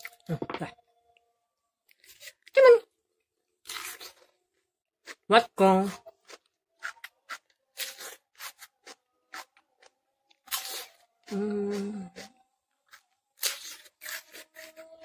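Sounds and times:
cucumber crunching: 1.9 - 2.6, 3.6 - 4.4, 5.0 - 15.0
person humming mmm: 10.6 - 15.0.

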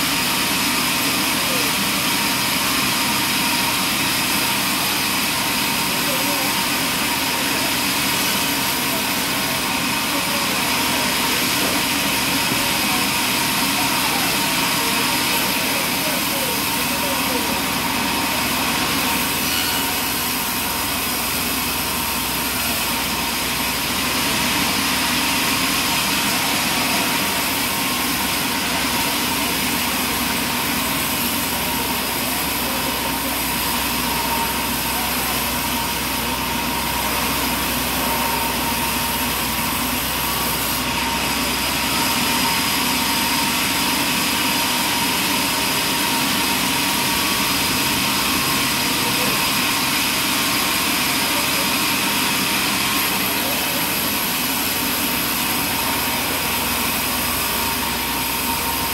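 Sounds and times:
band saw whining: 0.0 - 58.9
saw blade cutting log: 19.0 - 20.6.

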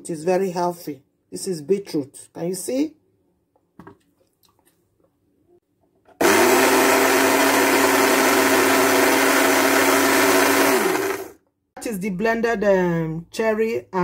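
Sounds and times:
blender running: 6.2 - 11.4.

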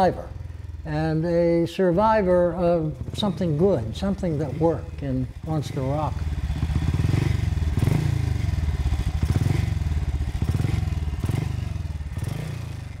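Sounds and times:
racing motorcycle engine running: 0.0 - 13.0.

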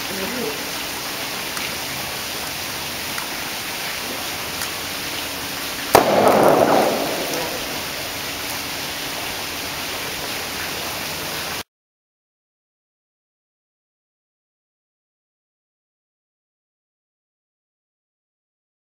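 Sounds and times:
steady hiss: 0.0 - 11.6
plastic bottle bursting with bang: 5.9 - 8.2.

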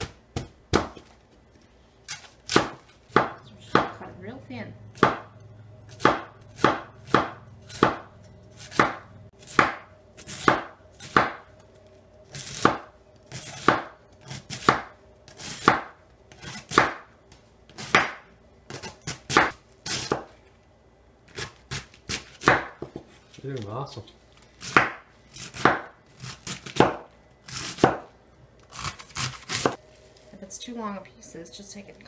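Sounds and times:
knife slicing cabbage on board: 8.6 - 11.4, 28.7 - 29.8.

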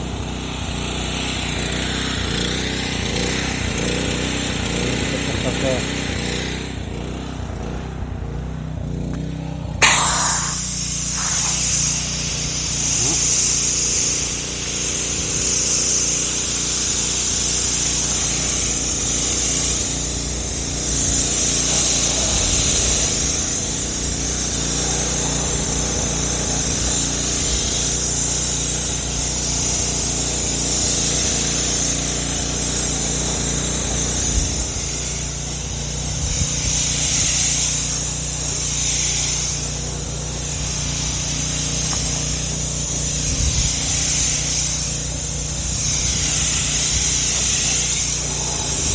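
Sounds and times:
pressure washer running: 0.0 - 48.9
hissing high-pressure spray: 9.8 - 48.9.

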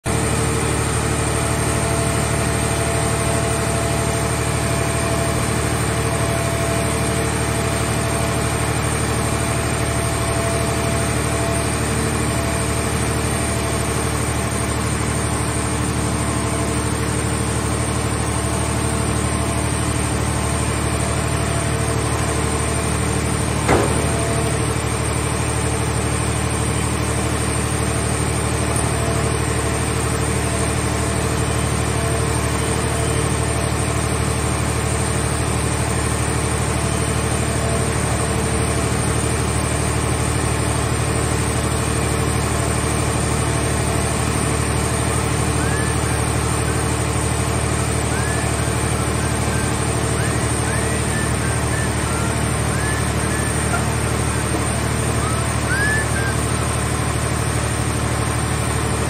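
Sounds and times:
baler power unit running: 0.1 - 59.0
sharp knock: 23.7 - 24.5.

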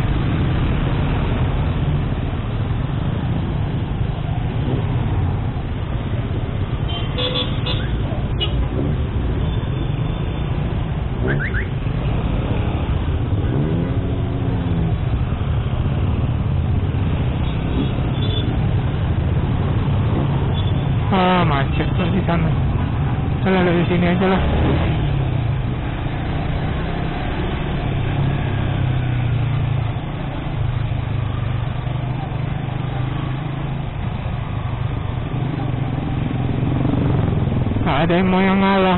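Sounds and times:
surrounding traffic: 0.0 - 38.9
engine revving: 11.2 - 15.0, 23.6 - 25.2.

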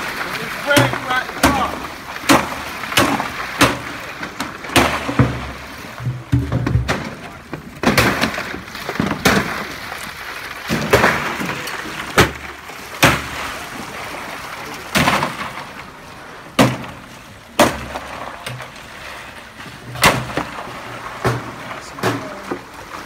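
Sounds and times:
cans and ice knocking: 0.0 - 9.9.

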